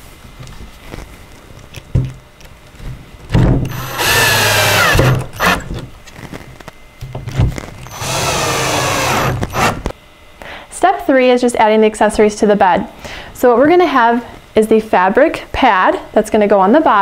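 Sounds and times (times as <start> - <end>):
drill motor whine: 3.7 - 5.8, 7.8 - 9.9.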